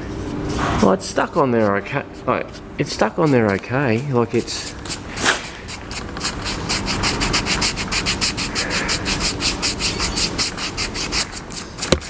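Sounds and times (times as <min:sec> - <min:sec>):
paintbrush scrubbing scratchy strokes: 0:00.0 - 0:11.9.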